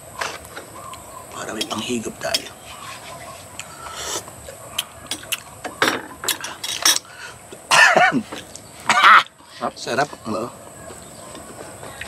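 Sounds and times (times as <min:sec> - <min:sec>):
man clearing his throat: 0:07.7 - 0:08.3
man coughing: 0:07.7 - 0:08.3.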